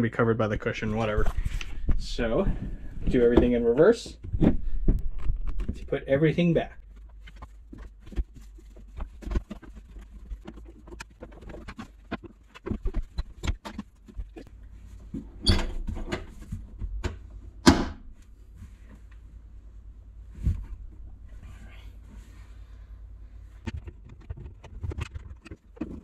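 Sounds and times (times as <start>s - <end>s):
clicks knocks and rustles: 6.8s - 18.0s, 23.6s - 26.0s.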